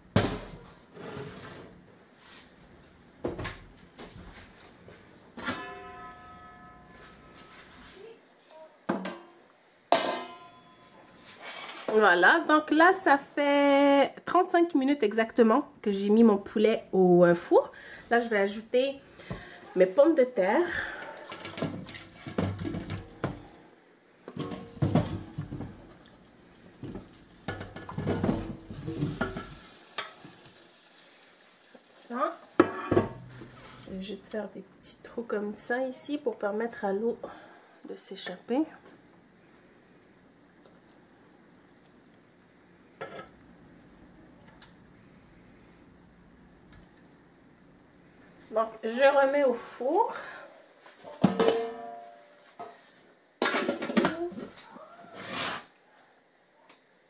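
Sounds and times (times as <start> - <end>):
metal lid ringing: 5.4 - 7.1, 10.0 - 10.9
metal pot and lid clanking: 5.4 - 7.1, 9.9 - 10.8, 24.3 - 25.8, 51.1 - 52.3
potatoes tumbling into metal pan: 21.3 - 23.6, 24.2 - 30.7, 51.0 - 54.6.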